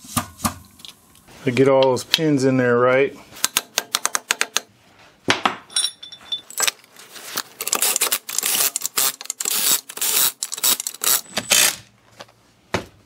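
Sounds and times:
high metallic ring: 5.7s - 6.6s
metal tools clinking and clattering: 5.7s - 7.1s.

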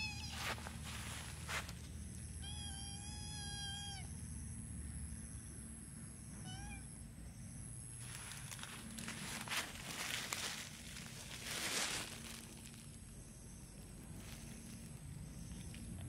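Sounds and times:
cat meowing: 0.0s - 0.5s, 2.4s - 4.1s, 6.4s - 6.9s.

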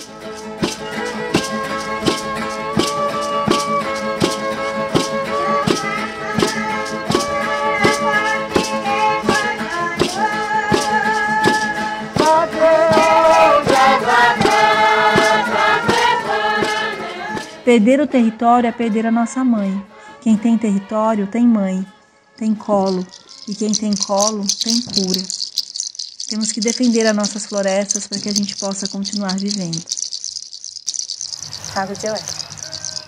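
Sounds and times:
gourd rattle shaken: 0.0s - 5.1s, 6.4s - 14.6s, 22.8s - 33.0s
voices singing a chant: 12.2s - 17.6s.

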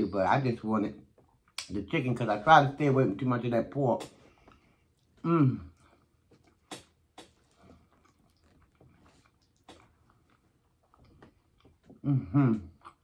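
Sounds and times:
wet mouth clicks: 4.0s - 4.2s, 5.7s - 10.2s
chewing soft food: 4.0s - 13.0s.

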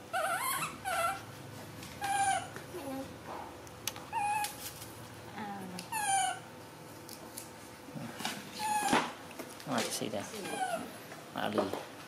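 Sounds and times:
baby monkey squeaky calls: 0.1s - 1.2s, 2.0s - 2.5s.

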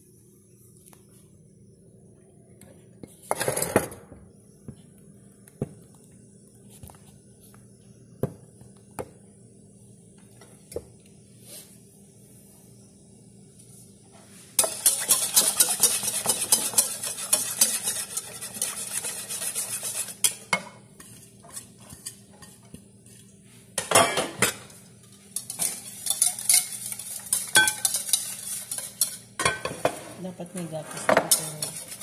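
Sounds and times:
fork clinking against bowl: 25.4s - 29.7s.

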